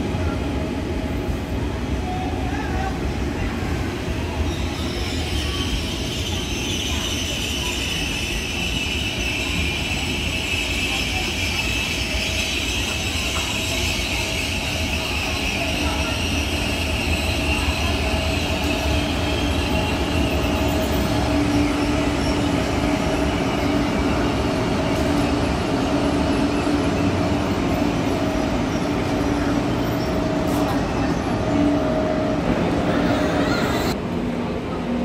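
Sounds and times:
train running rumble with whine: 0.0 - 35.0
high squeal: 4.4 - 24.2.

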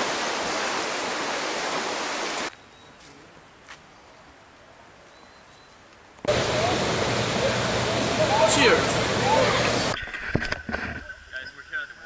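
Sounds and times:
rushing water hiss: 0.0 - 2.5, 6.3 - 10.0.

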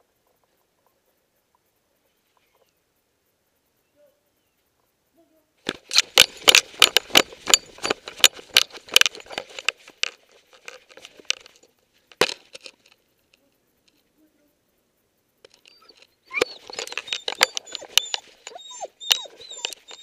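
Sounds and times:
camera clicks knocks and rustles: 5.7 - 13.0.

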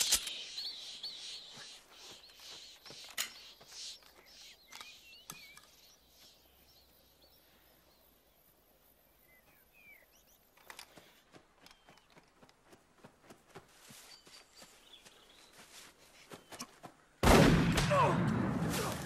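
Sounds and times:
sharp clicks: 0.0 - 0.8
small birds chirping: 0.0 - 17.2.

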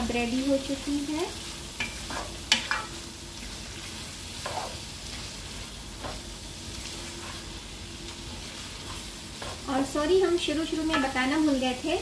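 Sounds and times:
curry sizzling in a pan: 0.0 - 12.0
spatula scraping a pan: 1.4 - 9.9.

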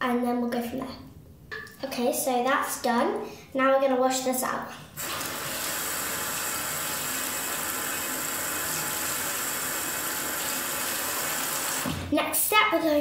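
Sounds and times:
tap water running into sink: 5.0 - 12.1.

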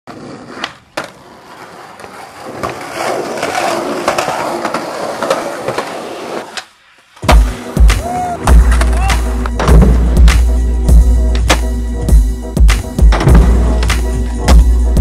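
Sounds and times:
skateboard clacking on ground: 0.1 - 7.3
skateboard wheels rolling: 0.1 - 10.2.

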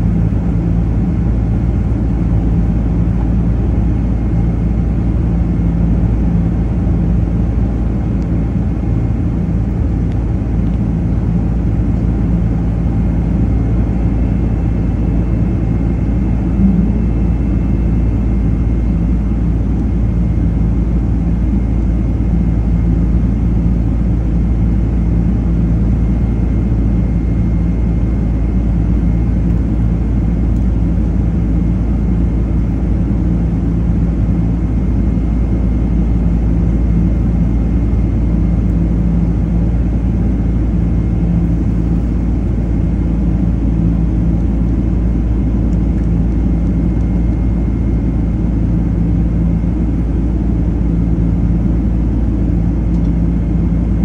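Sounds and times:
jet engine roar in cabin: 0.0 - 54.0
faint high whine: 10.8 - 31.0.

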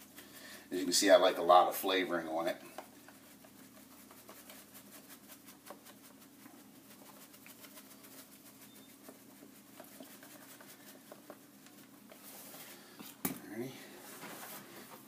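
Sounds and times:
shaker bottle rattling: 3.1 - 11.5.

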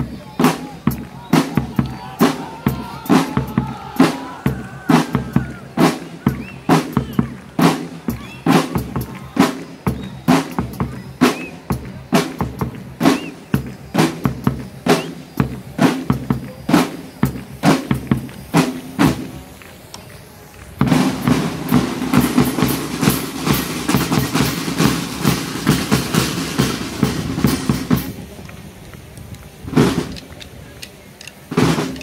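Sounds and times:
marching snare drums: 0.0 - 19.6, 20.8 - 28.4, 29.6 - 30.4, 31.4 - 32.0
brass band playing: 20.8 - 28.2.

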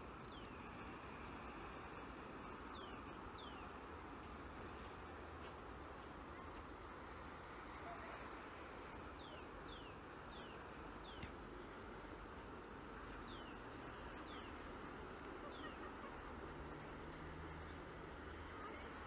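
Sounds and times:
steady low hiss: 0.0 - 19.0
small birds chirping: 0.2 - 0.7, 1.5 - 3.8, 4.4 - 6.9, 9.1 - 11.8, 13.0 - 14.7, 15.4 - 16.7.

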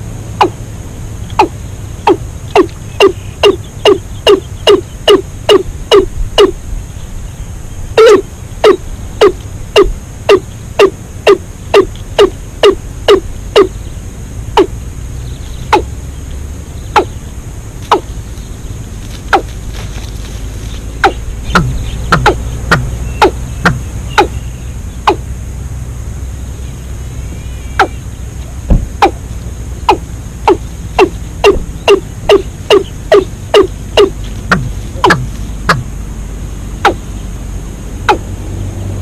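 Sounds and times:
watercock calling: 1.3 - 6.6, 8.0 - 13.7, 15.7 - 16.0, 16.9 - 17.2, 17.9 - 18.1, 21.0 - 25.3, 27.3 - 28.1, 28.7 - 29.2, 29.8 - 35.9, 38.0 - 38.3.

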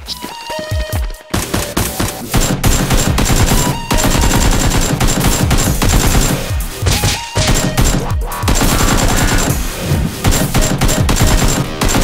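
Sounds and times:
automatic gunfire: 1.5 - 9.5, 10.2 - 12.0.

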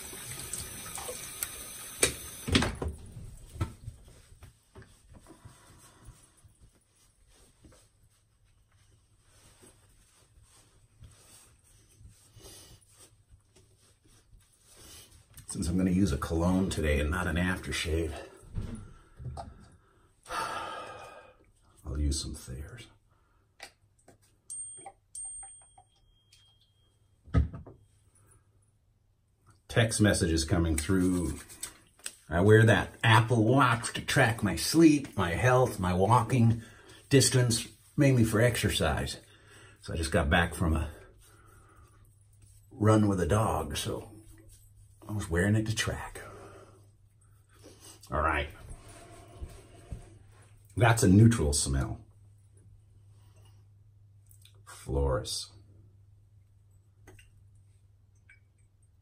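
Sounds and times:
water running from tap: 0.0 - 2.8.

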